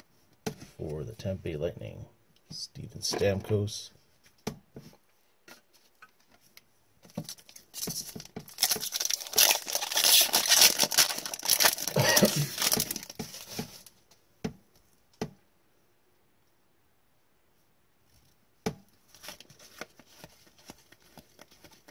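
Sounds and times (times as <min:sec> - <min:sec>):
foil wrapper tearing and crinkling: 0:07.3 - 0:13.9.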